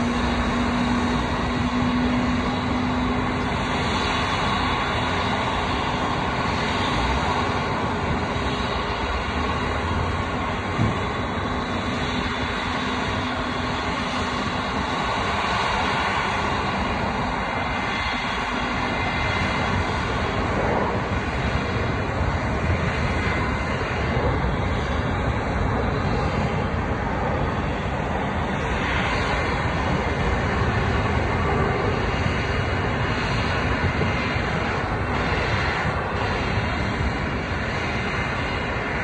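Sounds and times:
jet aircraft noise: 0.0s - 39.0s.

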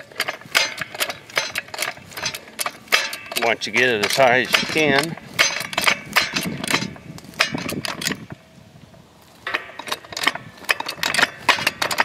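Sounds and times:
metallic clicks and clinks: 0.0s - 8.4s, 9.4s - 12.0s.

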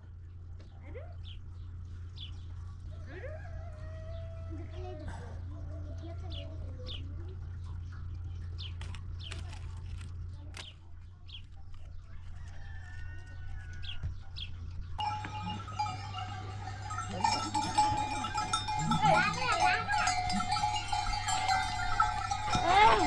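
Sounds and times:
chickens chirping: 11.3s - 23.0s
low hum: 14.2s - 23.0s
goat bells ringing: 15.0s - 23.0s
goats bleating: 15.0s - 23.0s.

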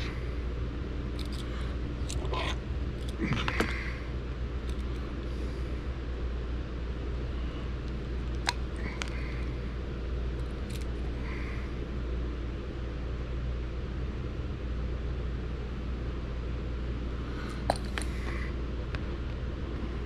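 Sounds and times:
low background hum: 0.0s - 20.0s
small tools clicking: 1.2s - 2.3s, 4.6s - 5.1s.

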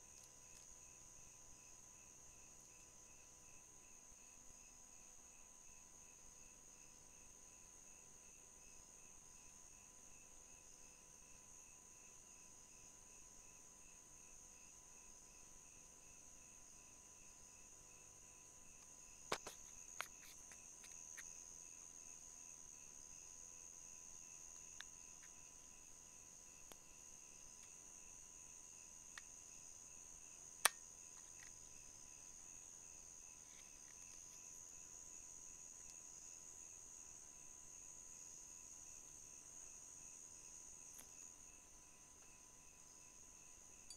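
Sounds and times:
crickets trilling: 0.0s - 43.9s
pulsing insect chirping: 0.1s - 43.9s.

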